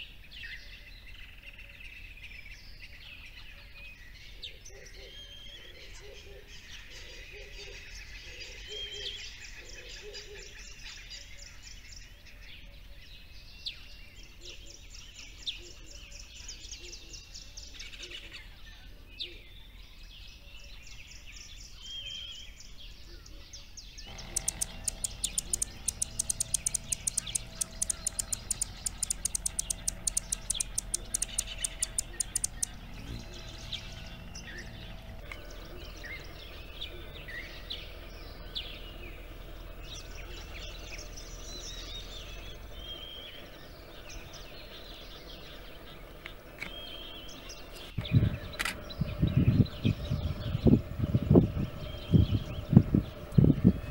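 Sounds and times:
small birds chirping: 0.0s - 53.9s
fast sharp ticks: 24.1s - 32.9s
faint steady hum: 24.1s - 53.9s.

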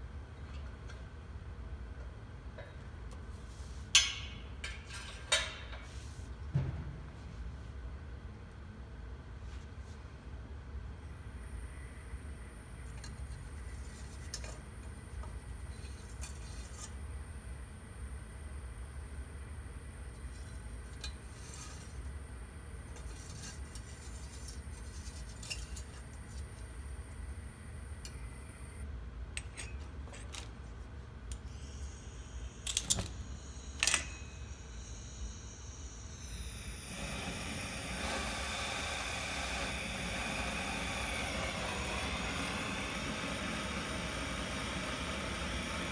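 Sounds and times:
low steady hum: 0.0s - 45.9s
torch flame rumbling: 36.8s - 45.9s.

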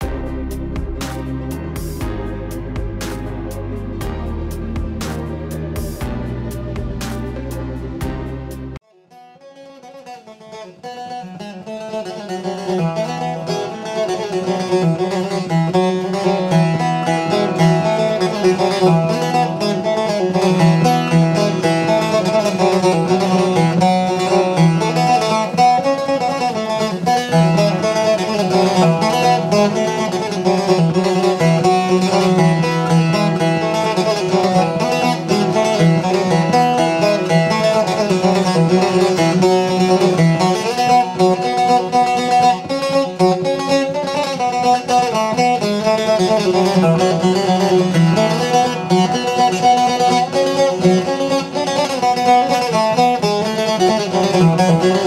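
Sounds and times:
plucked string music with beat: 0.0s - 55.0s.

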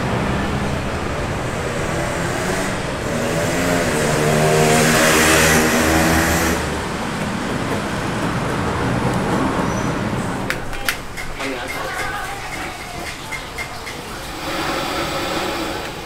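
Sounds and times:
vehicle engine passing close: 0.0s - 10.5s
road traffic: 0.0s - 16.0s.

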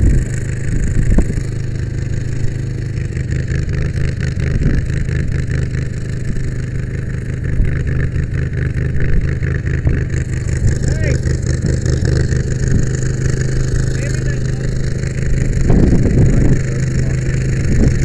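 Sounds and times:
wind noise: 0.0s - 1.6s, 11.6s - 13.2s, 15.2s - 18.0s
truck engine running: 0.0s - 18.0s
tyres on gravel: 9.6s - 18.0s.

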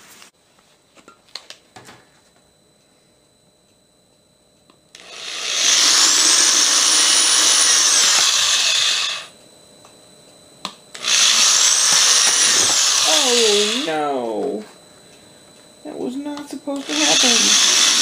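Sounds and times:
drill click: 4.9s - 9.4s, 10.6s - 14.0s, 16.8s - 18.0s
power drill boring through plastic: 5.0s - 9.4s, 11.0s - 14.0s, 16.8s - 18.0s.

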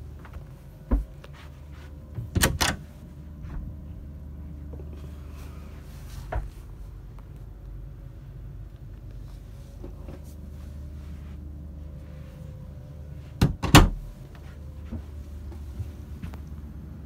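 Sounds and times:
low hum: 0.0s - 17.0s
wooden door knocks shutting: 13.4s - 14.0s.

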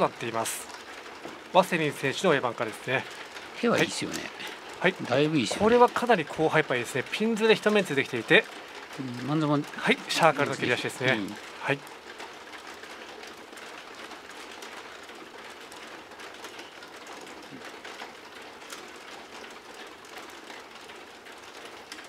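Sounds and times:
steady background hiss: 0.0s - 13.0s
mahjong tiles clicking: 0.0s - 22.0s.

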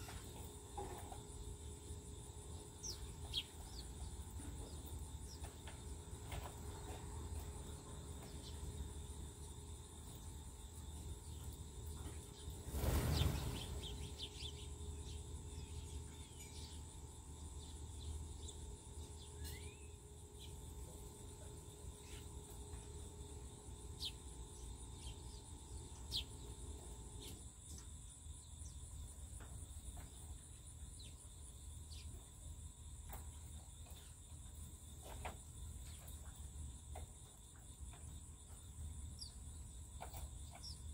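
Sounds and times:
high insect trill: 0.0s - 40.9s
wingbeats of birds flushing: 11.3s - 14.6s.

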